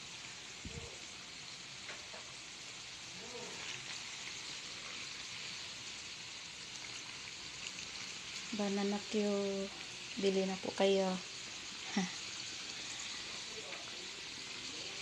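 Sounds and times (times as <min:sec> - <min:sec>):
bananas frying in hot oil: 0:00.0 - 0:15.0.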